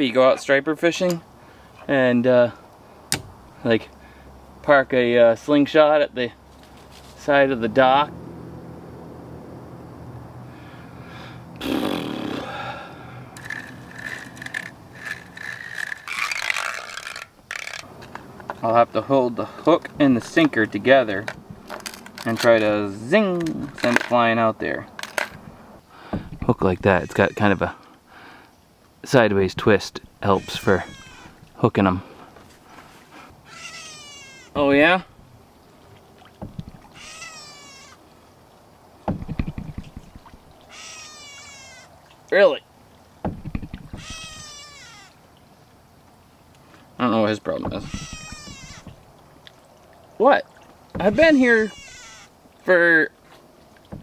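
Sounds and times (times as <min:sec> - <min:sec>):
fishing reel gears whirring: 0:13.4 - 0:17.9
animal crying: 0:26.8 - 0:27.8, 0:30.2 - 0:31.4, 0:33.3 - 0:34.8, 0:36.8 - 0:38.0, 0:40.6 - 0:42.0, 0:43.9 - 0:45.2, 0:47.7 - 0:49.0, 0:51.0 - 0:52.4.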